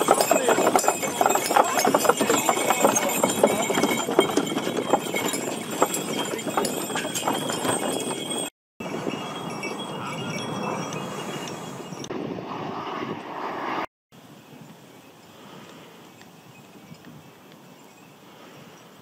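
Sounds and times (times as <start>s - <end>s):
horse hooves clip-clopping: 0.0s - 11.7s, 16.0s - 18.0s
jet airliner passing overhead: 10.3s - 13.9s.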